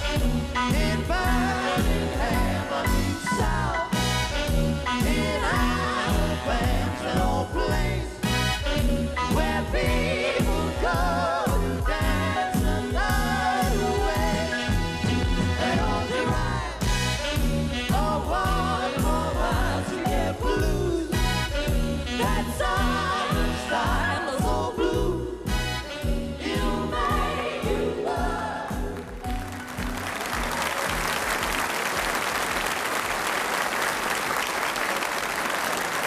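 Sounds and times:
vocal group singing: 0.0s - 29.5s
swing band playing: 0.0s - 33.1s
audience applauding: 29.0s - 36.0s.

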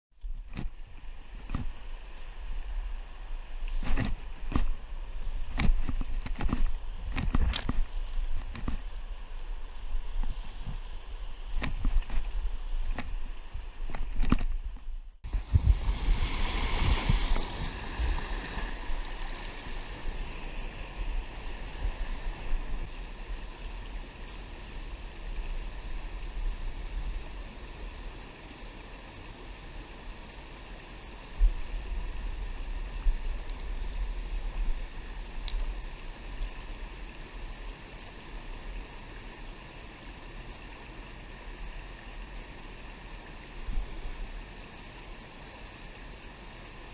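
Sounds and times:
low rumble on microphone: 0.2s - 27.5s
waterfall and rapids rushing: 0.4s - 46.9s.

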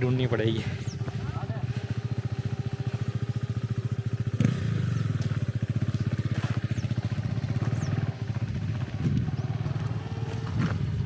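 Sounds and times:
motorcycle engine idling: 0.0s - 11.0s.

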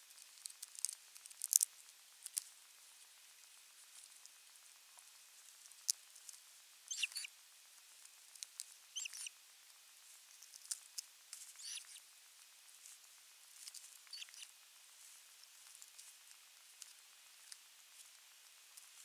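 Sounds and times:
short scratchy squeaky bursts: 6.9s - 7.3s, 9.0s - 9.3s, 11.6s - 12.0s, 14.0s - 14.5s.

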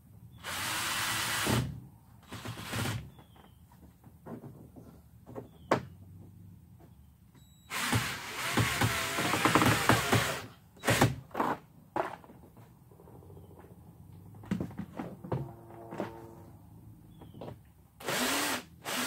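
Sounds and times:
cordless drill driving screw: 18.0s - 19.0s.

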